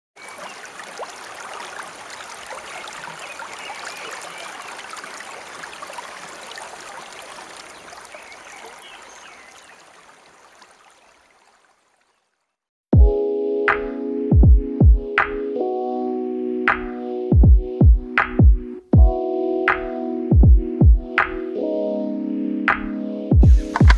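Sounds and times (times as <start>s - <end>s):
stream running over rocks: 0.2s - 12.4s, 23.6s - 23.9s.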